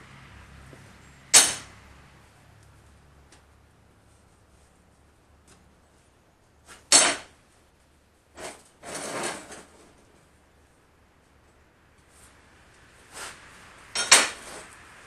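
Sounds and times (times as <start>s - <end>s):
metal scraping rattle: 8.3s - 10.3s, 13.1s - 14.8s
steel clanking on steel table: 14.0s - 14.6s.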